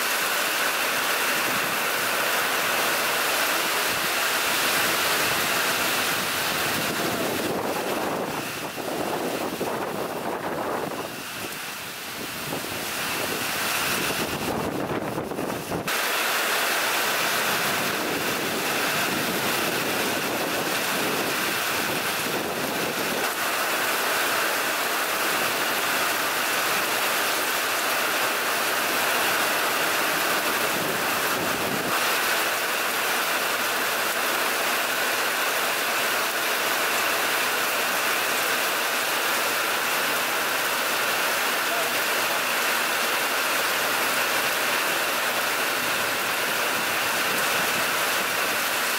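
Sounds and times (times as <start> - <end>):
heavy rain pouring: 0.0 - 48.9
gusting wind: 1.2 - 23.7, 28.8 - 32.2
wind rumble on microphone: 4.9 - 15.9, 17.5 - 23.3, 30.4 - 32.0.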